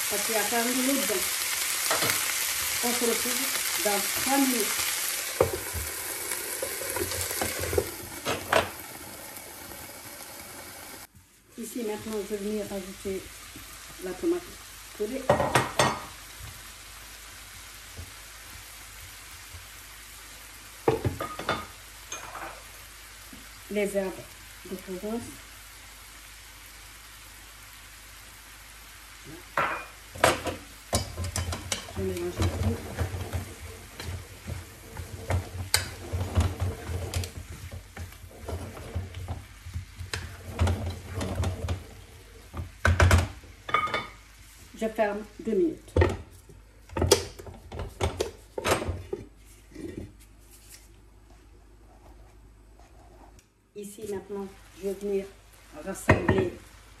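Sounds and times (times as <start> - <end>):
vegetables sizzling in a frying pan: 0.0 - 51.8, 53.5 - 57.0
spatula scraping frying pan: 31.0 - 42.8.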